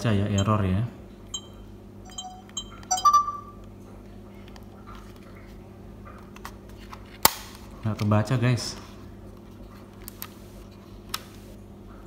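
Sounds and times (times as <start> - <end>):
short high beeps: 1.4 - 3.6.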